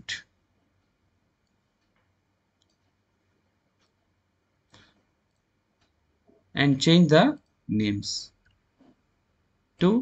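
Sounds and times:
computer mouse clicks: 0:00.8 - 0:03.1.

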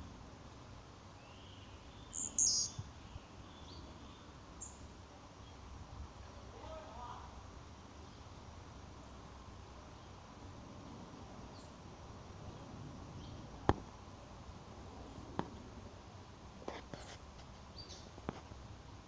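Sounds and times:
low background noise: 0:00.0 - 0:19.0
bird chirping: 0:01.0 - 0:06.9, 0:11.5 - 0:11.8, 0:12.4 - 0:13.7, 0:17.0 - 0:18.5.

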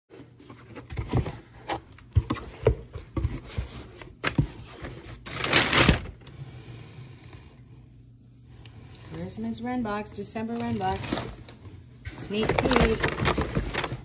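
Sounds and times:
loud cardboard rustle: 0:00.2 - 0:06.2, 0:12.1 - 0:14.0.

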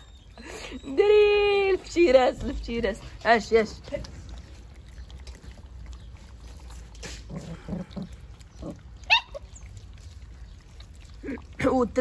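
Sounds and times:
puppies grunting and snuffling: 0:00.0 - 0:12.0
puppy high-pitched cry: 0:09.0 - 0:09.6.

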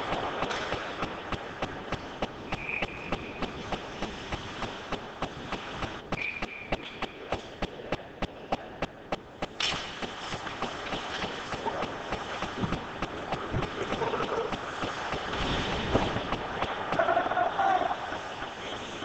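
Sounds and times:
sharp clicks: 0:00.0 - 0:17.0
referee's whistle blasts: 0:02.6 - 0:03.4, 0:06.2 - 0:06.8.

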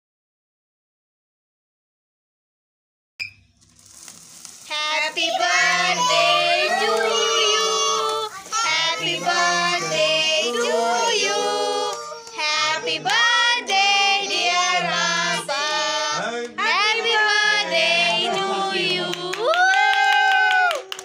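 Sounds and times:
child singing a birthday tune: 0:04.7 - 0:19.3.

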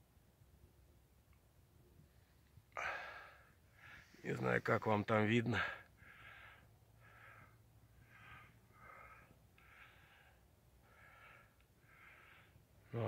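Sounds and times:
faint breathing: 0:02.0 - 0:04.8, 0:05.5 - 0:13.0.

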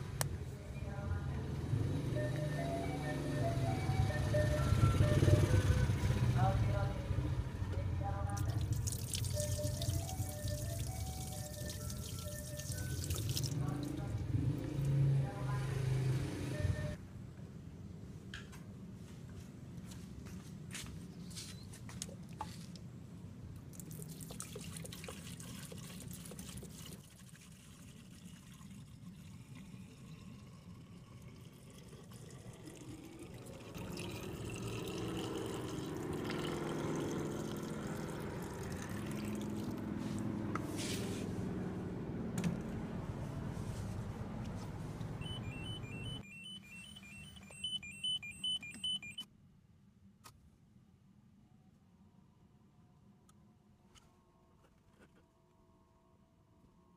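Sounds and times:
liquid glugging and splashing: 0:08.4 - 0:13.7, 0:23.7 - 0:39.8
dashboard warning chime beeps: 0:16.5 - 0:17.0, 0:45.2 - 0:49.3.

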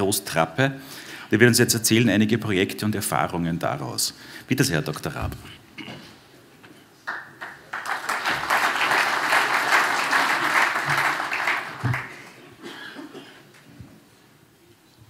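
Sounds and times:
audience applauding: 0:07.1 - 0:12.6.

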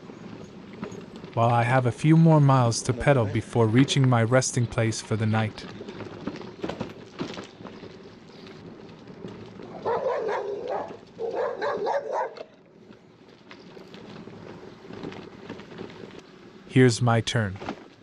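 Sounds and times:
background noise: 0:00.0 - 0:18.0
dog barking: 0:09.7 - 0:12.5.

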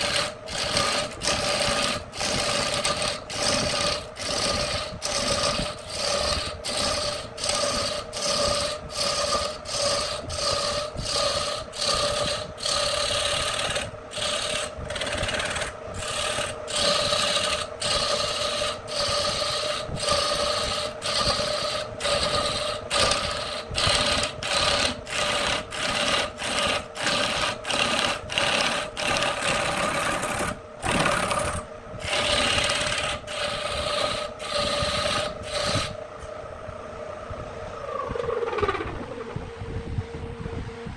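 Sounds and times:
gouge scraping spinning wood: 0:00.0 - 0:36.0
lathe motor hum: 0:00.0 - 0:40.9.

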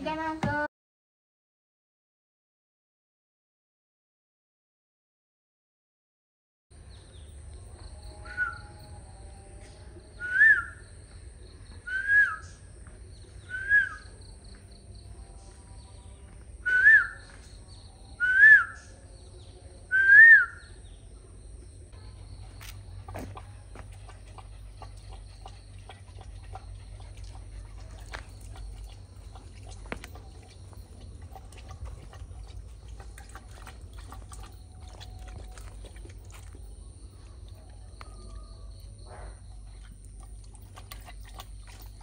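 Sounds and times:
bird whistling calls: 0:11.9 - 0:12.6, 0:13.5 - 0:14.1, 0:16.6 - 0:17.3, 0:18.2 - 0:18.9, 0:19.9 - 0:20.7.

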